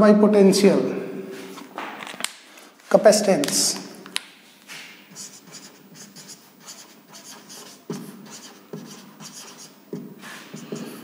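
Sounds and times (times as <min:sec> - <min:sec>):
marker writing on whiteboard: 0:05.1 - 0:11.0.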